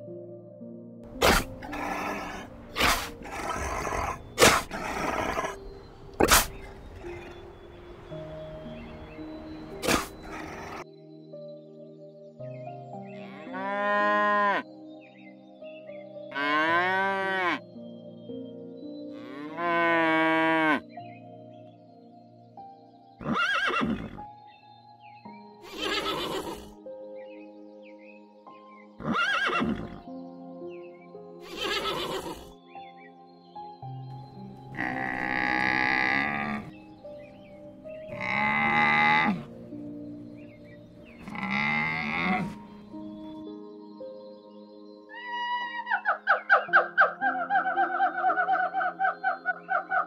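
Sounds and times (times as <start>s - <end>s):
soft background music: 0.0s - 50.0s
cow mooing: 1.2s - 5.6s, 16.3s - 17.6s, 19.2s - 20.8s, 34.8s - 36.8s, 38.1s - 39.5s, 41.2s - 42.8s
camel calling: 1.2s - 10.8s, 25.6s - 26.7s, 31.4s - 32.5s, 34.7s - 39.6s, 40.3s - 43.4s
horse whinny: 23.2s - 24.2s, 25.6s - 26.7s, 29.0s - 30.0s, 31.4s - 32.5s, 41.2s - 42.6s.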